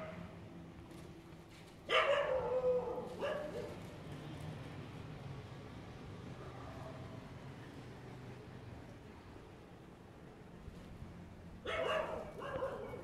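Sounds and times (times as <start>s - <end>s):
dog barking: 1.9s - 3.8s, 11.6s - 13.0s.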